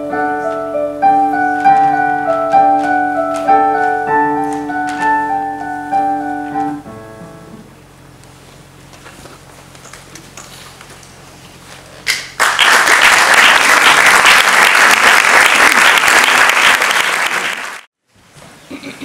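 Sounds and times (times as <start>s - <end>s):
audience applauding: 12.1s - 17.9s.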